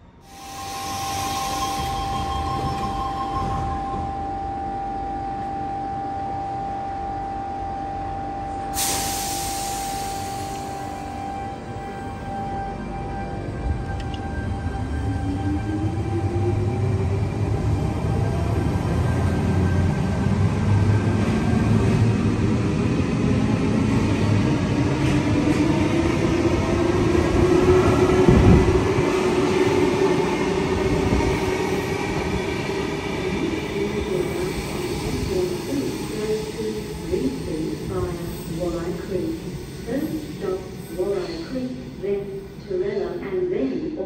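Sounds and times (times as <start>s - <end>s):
train equipment humming and whining: 0.0s - 44.0s
loud hiss: 8.8s - 10.8s.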